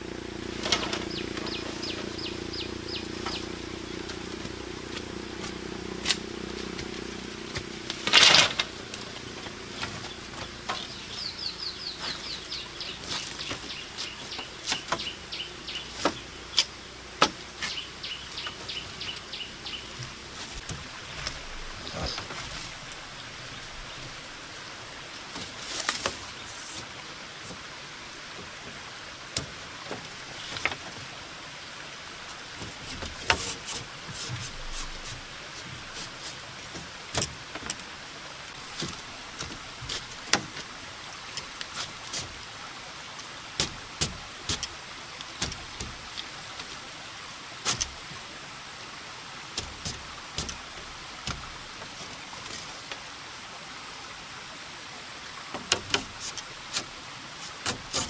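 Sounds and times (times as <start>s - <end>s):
faint hiss: 0.0s - 58.0s
bamboo strips clicking and scraping: 0.5s - 2.3s, 3.0s - 11.2s, 12.0s - 19.3s, 25.3s - 27.7s, 32.3s - 42.5s, 43.1s - 46.9s, 47.5s - 48.3s, 49.6s - 53.2s, 55.4s - 58.0s.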